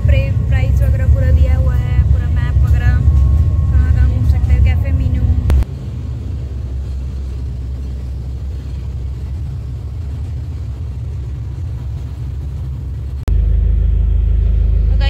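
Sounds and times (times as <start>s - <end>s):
loud low rumble: 0.0s - 15.0s
ship engines droning: 0.0s - 15.0s
water wake rushing: 0.0s - 15.0s.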